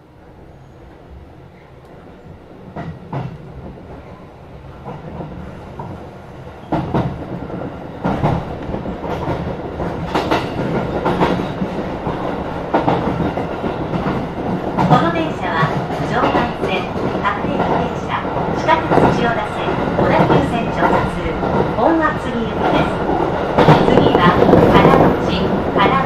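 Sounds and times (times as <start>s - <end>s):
electric train rumbling: 0.0s - 26.0s
wheels clacking over rail joints: 6.6s - 26.0s.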